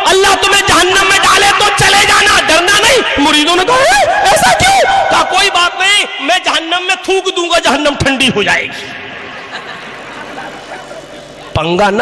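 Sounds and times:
murmuring crowd voices: 8.8s - 11.7s.

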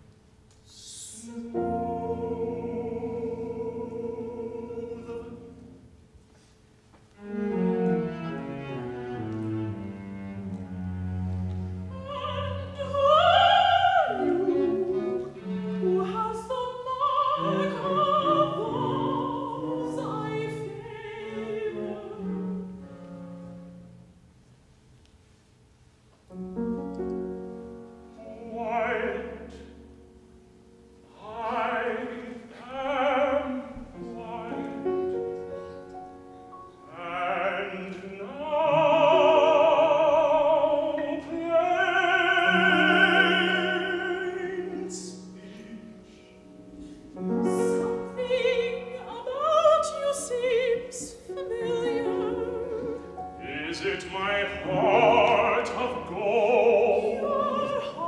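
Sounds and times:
operatic singing with vibrato: 0.6s - 6.0s, 10.8s - 22.9s, 28.1s - 30.0s, 30.9s - 58.0s
piano accompaniment: 1.3s - 6.2s, 7.2s - 16.3s, 26.3s - 58.0s.

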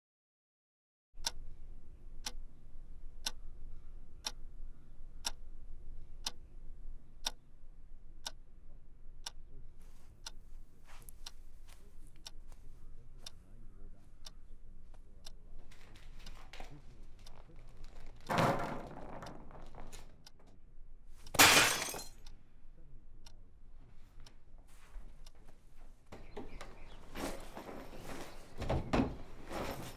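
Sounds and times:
wall clock ticking: 1.2s - 1.5s, 2.2s - 2.6s, 3.2s - 3.5s, 4.2s - 4.5s, 5.2s - 5.5s, 6.2s - 6.4s, 7.2s - 7.4s, 8.2s - 8.5s, 9.2s - 18.4s
soft clicks and rustling: 14.9s - 20.6s.

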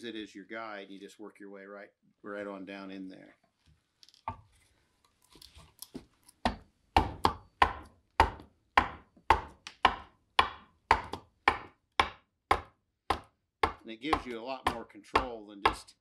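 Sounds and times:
adze chopping into wood: 6.4s - 15.9s.

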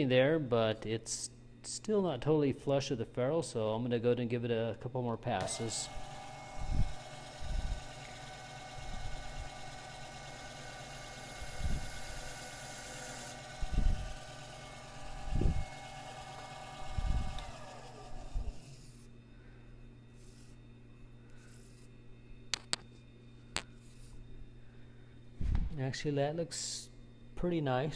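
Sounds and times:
lathe motor whining: 5.4s - 19.1s.

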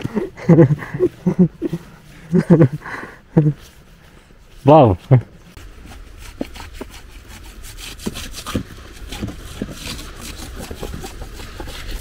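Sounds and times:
rough rasping and crunching strokes: 5.5s - 12.0s.

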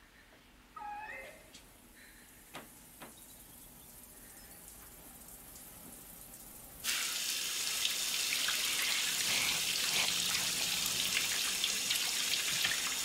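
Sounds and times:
shower spray hissing: 6.8s - 13.0s.

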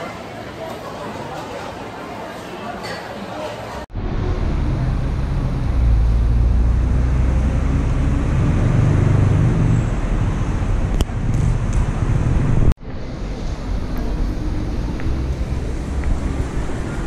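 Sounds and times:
traffic rumble: 3.8s - 17.0s.

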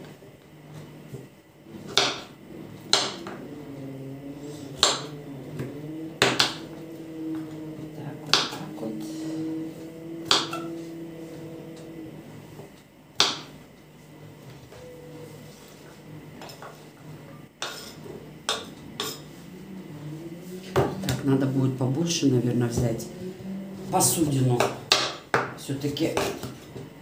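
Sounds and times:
knife chopping on wooden board: 1.9s - 2.3s, 2.9s - 3.4s, 4.8s - 6.6s, 8.2s - 8.7s, 10.2s - 10.7s, 13.2s - 13.6s, 24.6s - 25.5s.

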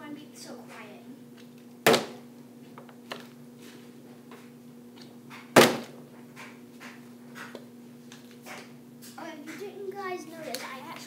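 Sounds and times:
plastic bottle landing thunk: 1.9s - 2.2s, 5.6s - 6.0s.

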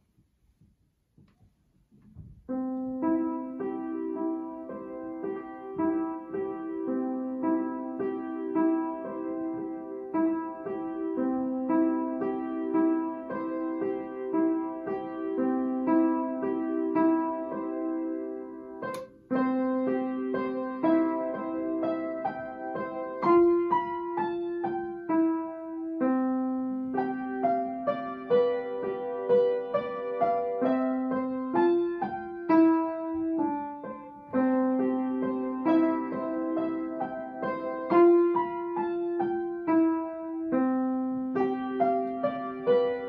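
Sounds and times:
solo upright piano melody: 0.0s - 43.0s
sharp click: 18.9s - 19.2s.

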